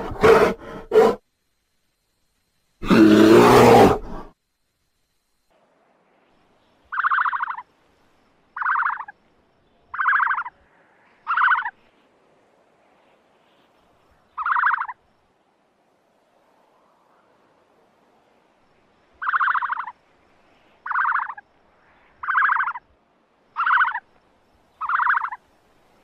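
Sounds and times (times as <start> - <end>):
bear roaring: 0.0 - 1.2, 2.8 - 4.3.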